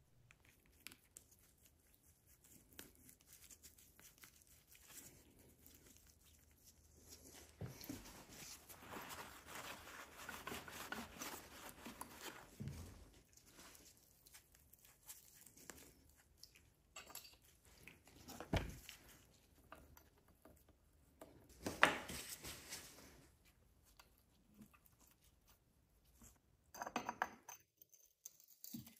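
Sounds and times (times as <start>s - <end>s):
rustling and scraping: 0.3s - 20.7s, 21.4s - 26.5s.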